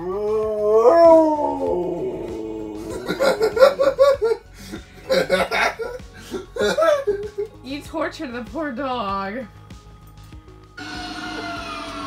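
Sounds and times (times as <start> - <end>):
dog howling: 0.0 - 3.2
man laughing: 2.6 - 7.6.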